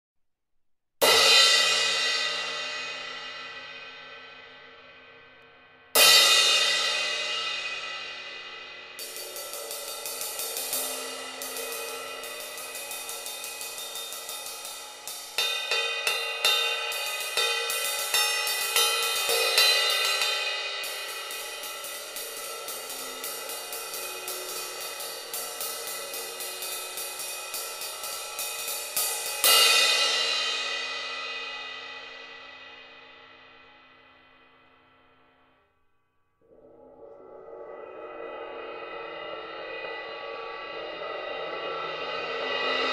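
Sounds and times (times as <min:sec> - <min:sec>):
quick stick strokes on cymbal: 0:06.0 - 0:34.1
crash cymbal ringing: 0:06.0 - 0:35.2.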